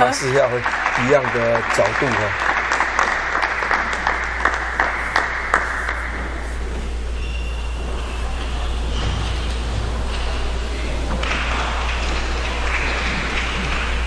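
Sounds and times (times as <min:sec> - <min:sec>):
spectators applauding: 0:00.0 - 0:06.6, 0:10.1 - 0:14.0
low hall hum: 0:00.0 - 0:14.0.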